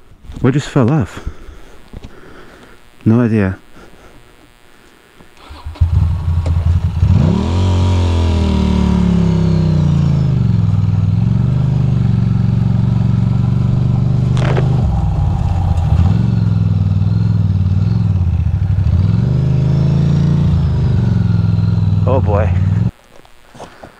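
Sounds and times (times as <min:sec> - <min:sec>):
motorcycle engine revving: 0:05.4 - 0:22.9
tyres on gravel: 0:13.0 - 0:15.9
brief sharp noise: 0:14.2 - 0:17.7.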